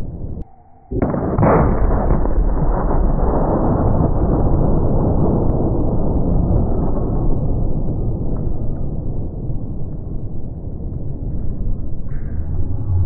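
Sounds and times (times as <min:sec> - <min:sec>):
gun firing deep boom: 0:01.0 - 0:11.3.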